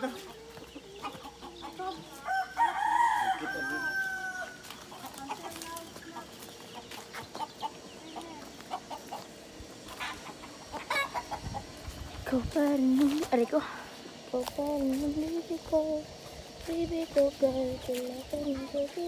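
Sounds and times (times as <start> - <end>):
chicken clucks: 0.0 - 12.3
rooster crowing: 2.1 - 4.8.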